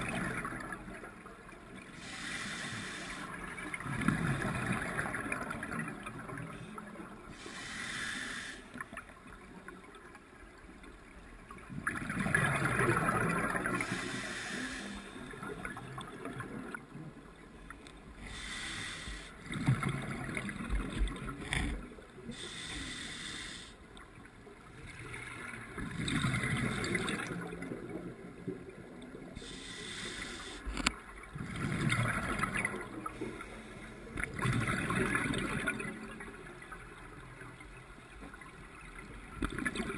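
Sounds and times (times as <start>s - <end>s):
regulator bubbles gurgling underwater: 0.0s - 39.9s
faint hiss: 1.9s - 3.6s, 7.2s - 9.0s, 13.7s - 15.4s, 18.2s - 19.4s, 22.3s - 24.0s, 29.4s - 30.9s.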